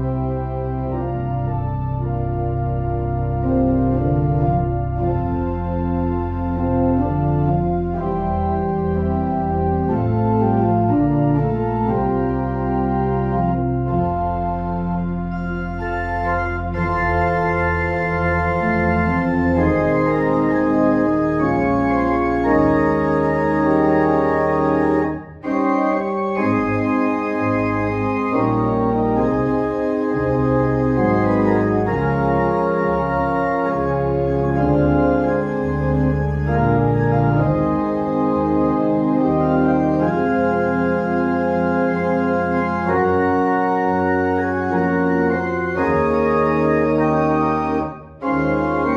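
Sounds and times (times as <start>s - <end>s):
pipe organ playing sustained chords: 0.0s - 48.9s.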